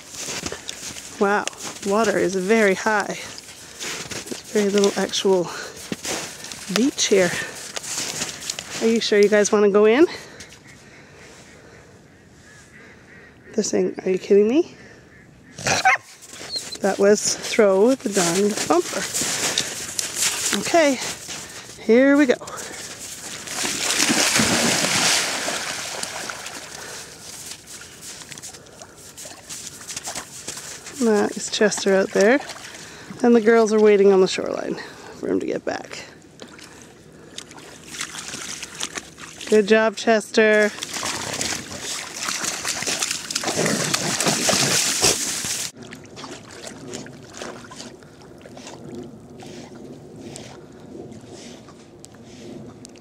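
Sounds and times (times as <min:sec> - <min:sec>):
water sloshing and trickling: 0:00.0 - 0:10.7, 0:16.1 - 0:35.1, 0:35.9 - 0:53.0
dogs wading through water: 0:00.0 - 0:11.4, 0:15.6 - 0:35.1, 0:36.2 - 0:53.0
dog splashing into water: 0:22.6 - 0:27.6, 0:40.6 - 0:48.0.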